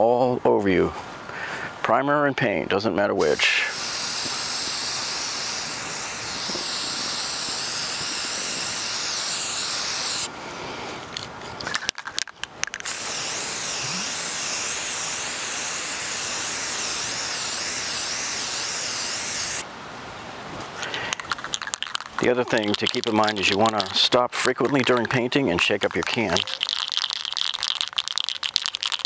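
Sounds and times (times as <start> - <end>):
aerosol can spraying: 3.2 - 10.3, 12.8 - 19.6, 21.6 - 25.2, 25.9 - 29.0
spray can clicks: 3.4 - 10.3, 21.1 - 25.2.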